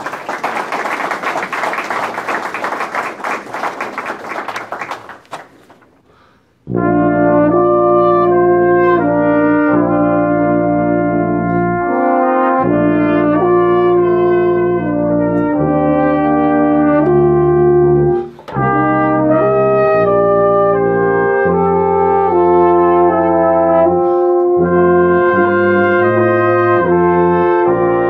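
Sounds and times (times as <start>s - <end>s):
brass ensemble playing chords: 6.6s - 28.0s.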